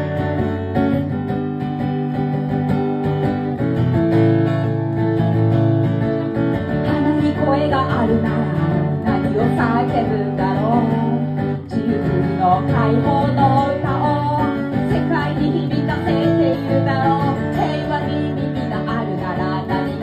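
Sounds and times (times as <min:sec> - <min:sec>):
acoustic guitar strumming: 0:00.0 - 0:20.0
person singing: 0:06.8 - 0:20.0.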